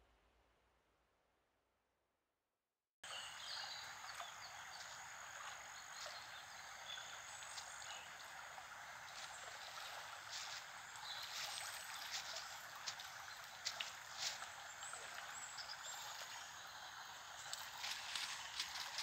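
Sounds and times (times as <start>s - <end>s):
flowing river water: 3.0s - 19.0s
water splashing and dripping: 3.4s - 19.0s.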